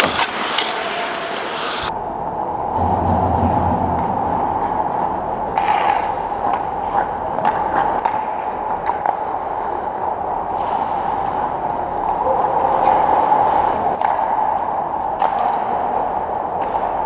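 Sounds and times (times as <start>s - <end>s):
hockey sticks and puck clicking: 0.0s - 1.9s, 6.9s - 9.5s, 14.0s - 17.0s
skates scraping ice: 0.0s - 1.9s
steady background hum: 0.0s - 17.0s.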